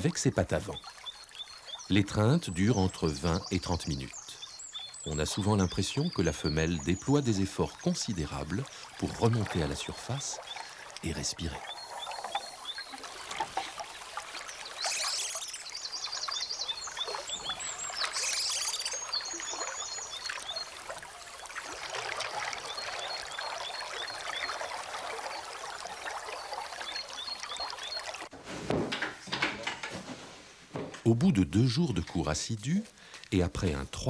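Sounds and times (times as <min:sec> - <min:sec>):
otters splashing in water: 0:05.1 - 0:28.3
rapid high-pitched chirping: 0:14.8 - 0:15.8, 0:17.4 - 0:19.2.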